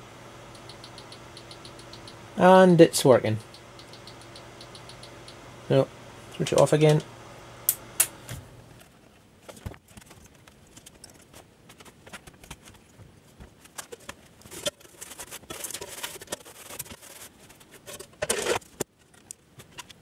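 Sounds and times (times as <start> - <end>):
metal parts clicking and clattering: 13.7 - 20.0.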